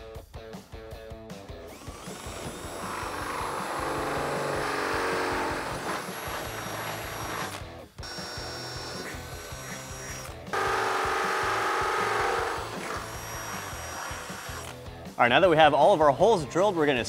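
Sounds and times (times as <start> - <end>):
cordless drill whining: 1.6 - 14.8.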